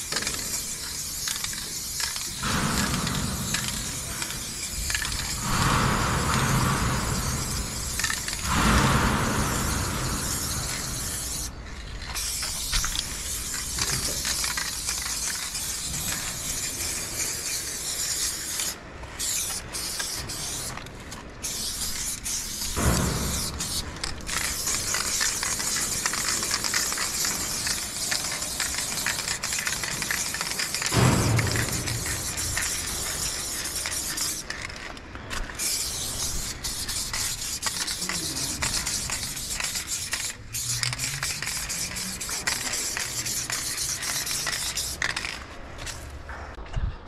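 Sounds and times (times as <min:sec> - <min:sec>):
spray can hissing: 0:00.0 - 0:46.0.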